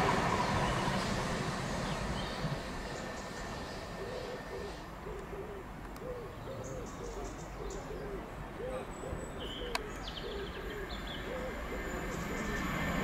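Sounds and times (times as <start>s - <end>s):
small birds chirping: 6.0s - 12.7s.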